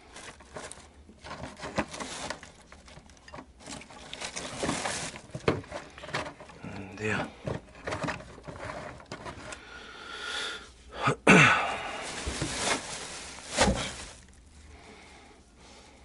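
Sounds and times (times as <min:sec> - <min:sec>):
plastic bags and cloth rustling: 0:00.0 - 0:09.6, 0:11.3 - 0:15.1
knocks and clicks of handling: 0:02.6 - 0:06.6, 0:07.3 - 0:09.6.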